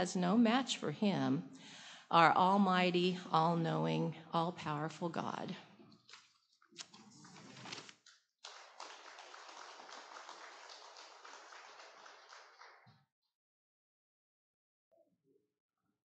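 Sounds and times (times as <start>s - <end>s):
crowd applauding: 8.4s - 13.0s.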